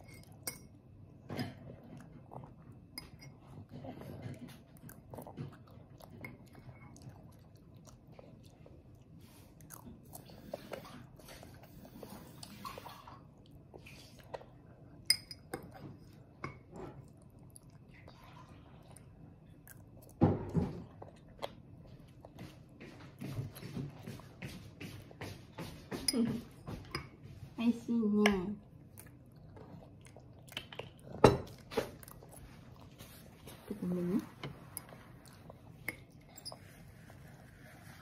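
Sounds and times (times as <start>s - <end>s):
chewing and slurping noodles: 28.6s - 38.0s.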